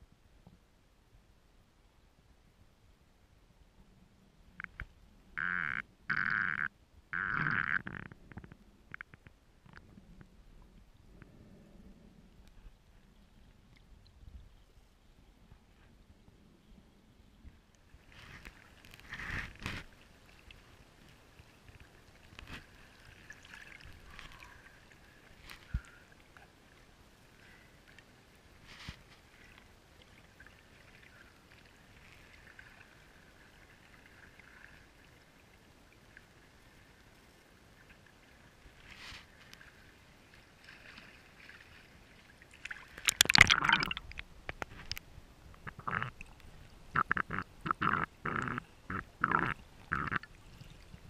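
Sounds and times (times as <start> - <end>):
water lapping: 17.8 - 45.0
short underwater gurgles: 42.6 - 45.0, 45.6 - 51.0.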